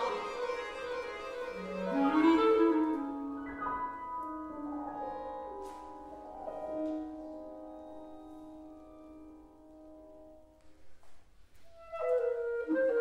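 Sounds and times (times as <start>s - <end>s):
chamber music instrumental line: 0.0s - 7.1s.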